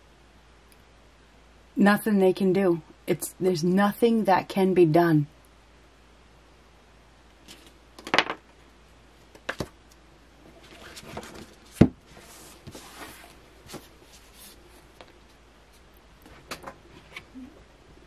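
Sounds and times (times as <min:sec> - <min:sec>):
cards rustling and sliding on cloth: 0:07.4 - 0:07.8, 0:10.6 - 0:17.3.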